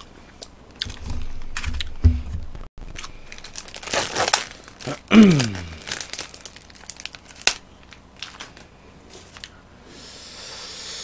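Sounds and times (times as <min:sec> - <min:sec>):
person chewing: 0:02.8 - 0:06.2.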